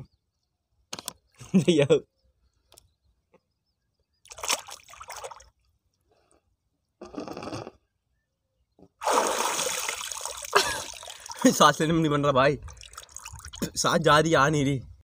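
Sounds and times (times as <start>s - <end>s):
river water splashing: 4.3s - 5.6s, 9.0s - 11.8s, 12.7s - 13.7s.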